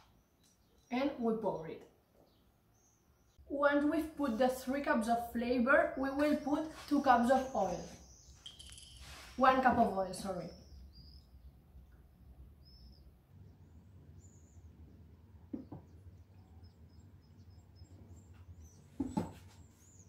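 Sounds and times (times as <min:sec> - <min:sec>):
faint bird chirps: 0:06.2 - 0:12.0, 0:12.6 - 0:15.0
soft knock: 0:15.5 - 0:15.9.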